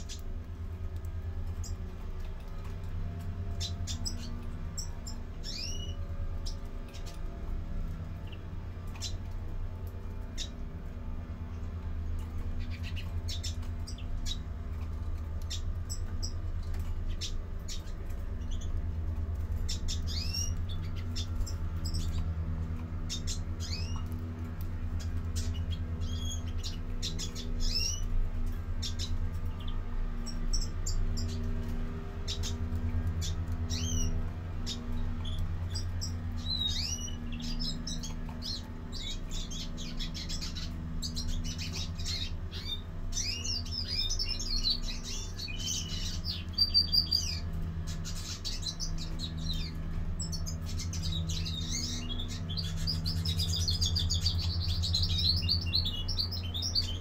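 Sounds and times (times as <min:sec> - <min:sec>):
steady low hum: 0:00.0 - 0:57.0
finches chirping: 0:03.5 - 0:07.3, 0:12.2 - 0:57.0.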